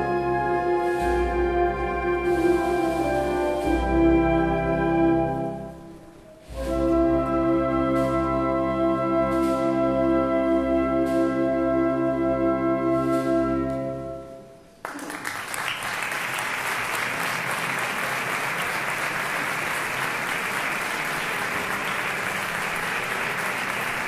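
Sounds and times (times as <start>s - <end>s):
audience applause: 14.8s - 24.0s.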